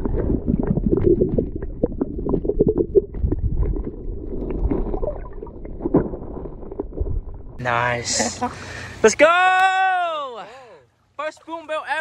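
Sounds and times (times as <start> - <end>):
water splashing: 0.0 - 7.6.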